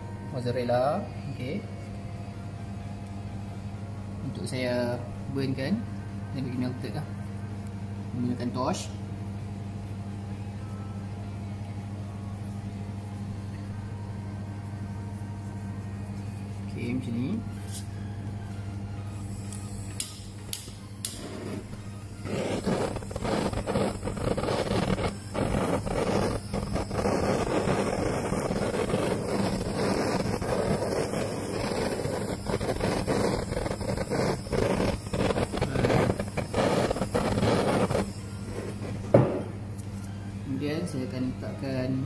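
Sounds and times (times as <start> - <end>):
blowtorch flame hissing: 19.1 - 39.6
blowtorch igniter clicks: 19.5 - 39.5.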